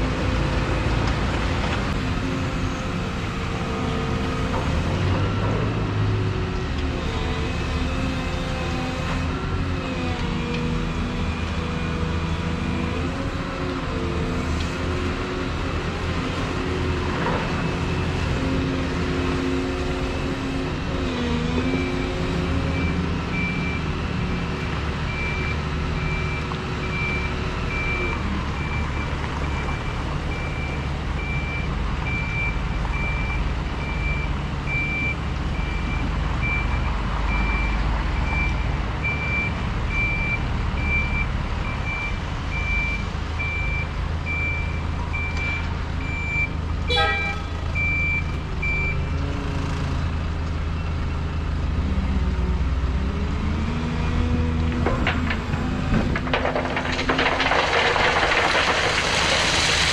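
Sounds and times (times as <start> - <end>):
diesel engines running: 0.0 - 59.9
truck reversing alarm beeps: 4.8 - 6.4, 21.6 - 49.1.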